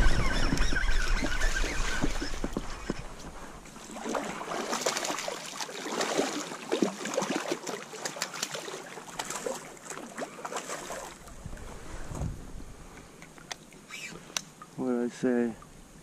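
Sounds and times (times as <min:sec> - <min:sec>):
fish splashing at water surface: 0:03.9 - 0:11.3.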